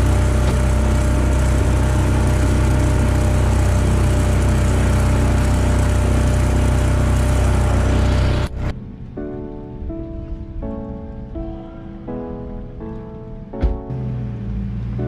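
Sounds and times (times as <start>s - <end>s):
outboard motor running: 0.0s - 8.7s.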